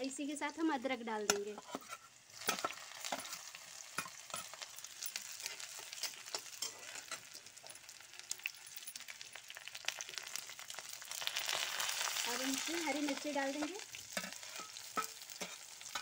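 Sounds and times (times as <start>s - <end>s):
spices sizzling in hot oil: 0.0s - 16.0s
steel spatula scraping pan: 1.5s - 7.4s, 13.0s - 16.0s.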